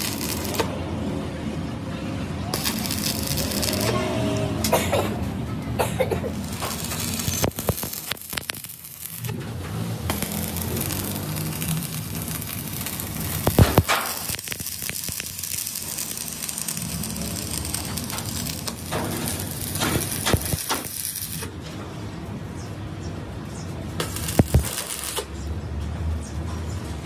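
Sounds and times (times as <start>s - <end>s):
sharp welding arc cracks: 0.0s - 0.8s, 2.5s - 4.7s, 6.3s - 21.5s, 24.0s - 25.3s
welding arc crackling sizzle: 0.0s - 0.8s, 2.5s - 4.7s, 6.1s - 21.6s, 23.9s - 25.4s.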